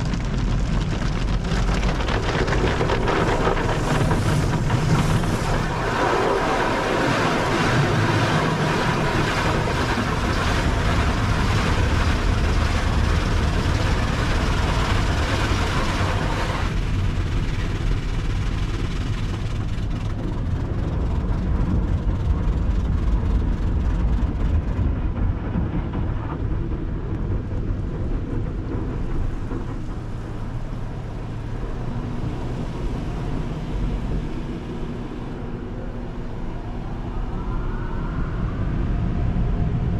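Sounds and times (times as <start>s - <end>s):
low rumble: 0.0s - 39.9s
car wash spray hissing roar: 2.2s - 20.6s.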